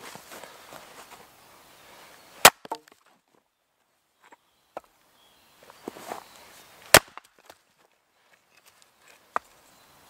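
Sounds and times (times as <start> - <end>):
axe striking log: 2.4 - 3.0, 6.9 - 7.3
wood splitting crack: 2.4 - 3.0, 6.9 - 7.6.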